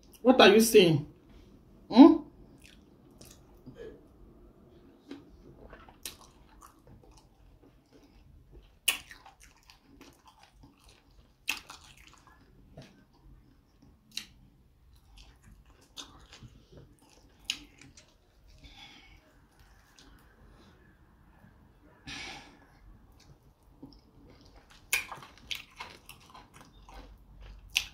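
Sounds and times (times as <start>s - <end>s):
chewing and mouth smacks: 2.5s - 3.8s, 5.0s - 18.7s, 19.5s - 20.4s, 23.1s - 27.9s.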